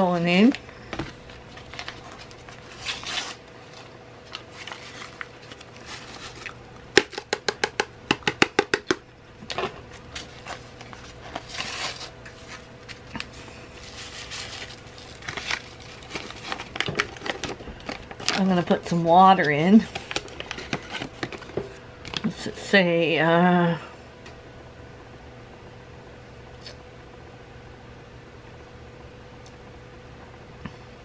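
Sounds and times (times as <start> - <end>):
faint steady hum: 0.0 - 31.0
paper packets crinkling: 0.4 - 6.6, 9.9 - 21.8.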